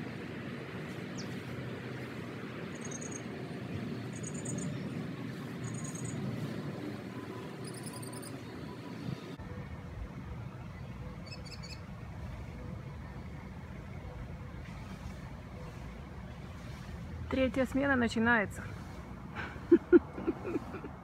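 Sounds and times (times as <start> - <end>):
songbird high chirps: 2.7 - 3.3, 3.9 - 6.3, 7.4 - 9.2, 10.8 - 11.9.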